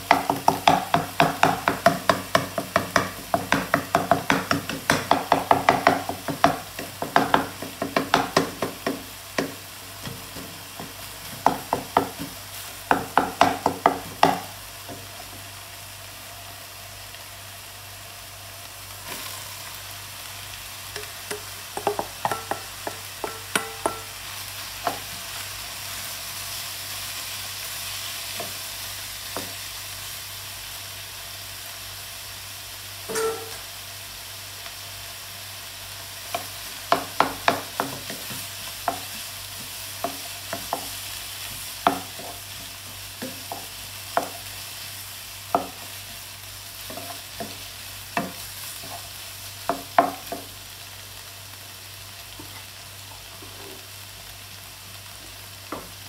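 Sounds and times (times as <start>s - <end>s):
spatula knocking and scraping pan: 0.0s - 15.1s, 21.0s - 24.2s, 36.3s - 44.5s, 45.5s - 46.2s, 46.8s - 49.1s
food sizzling in a frying pan: 0.0s - 56.0s.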